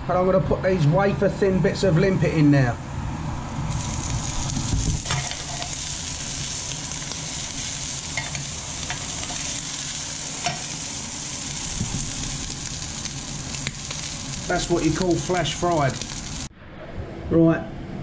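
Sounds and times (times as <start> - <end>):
food sizzling in frying pan: 3.7 - 16.5.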